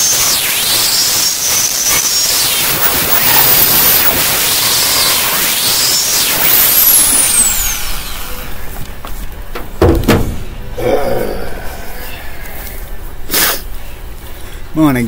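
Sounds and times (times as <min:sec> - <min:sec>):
drill spinning down: 0:00.0 - 0:08.6
drill sanding disc grinding: 0:00.0 - 0:08.9
knocks: 0:09.5 - 0:10.6.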